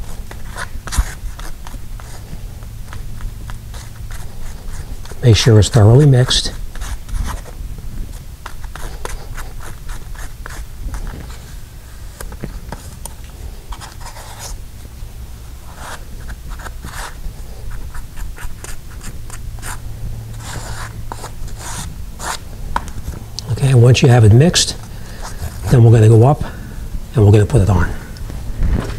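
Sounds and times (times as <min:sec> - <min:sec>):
putty knife scraping on cardboard: 0:15.6 - 0:22.9.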